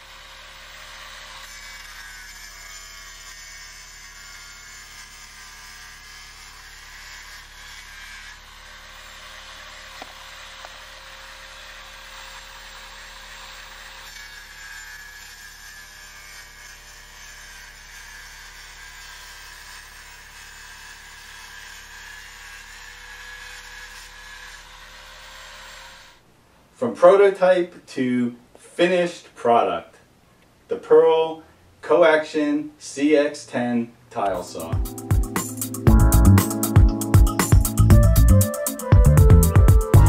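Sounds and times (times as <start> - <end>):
tile saw cutting tile: 0.0 - 26.2, 34.2 - 40.0.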